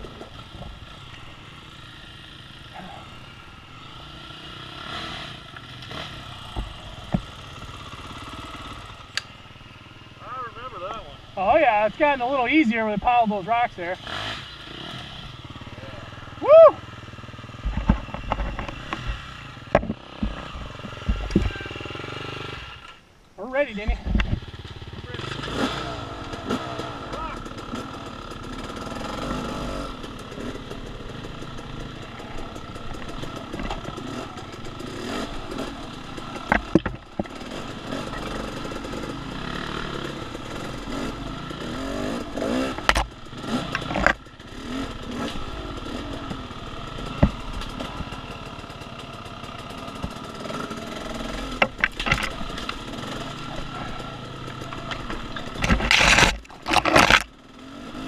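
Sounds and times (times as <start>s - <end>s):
dirt bike engine revving: 0.0s - 58.0s
sharp knocks and clatter: 17.6s - 21.5s, 30.1s - 35.1s, 35.7s - 39.1s, 42.1s - 44.4s, 45.1s - 48.7s, 49.9s - 57.3s.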